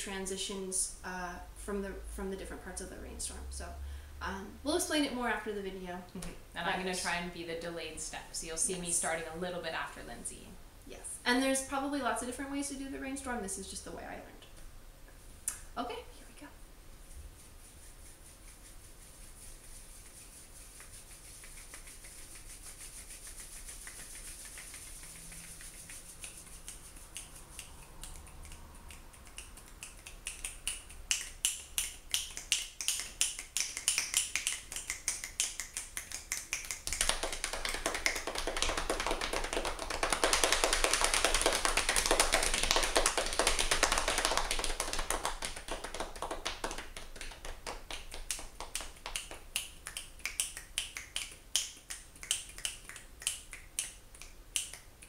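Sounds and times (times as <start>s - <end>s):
finger snaps: 15.4s - 15.7s, 23.9s - 37.2s, 48.3s - 55.0s
palms rubbing together: 17.0s - 54.9s
hand slaps patter: 20.0s - 55.0s.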